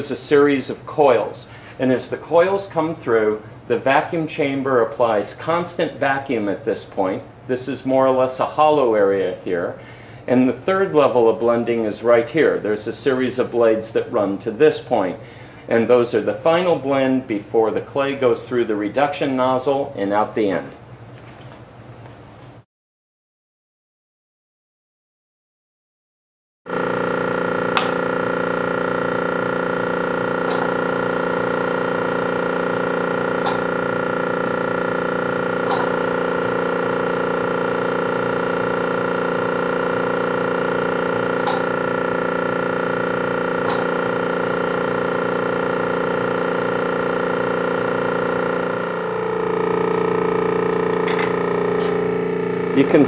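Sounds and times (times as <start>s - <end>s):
motor hum: 26.7s - 53.0s.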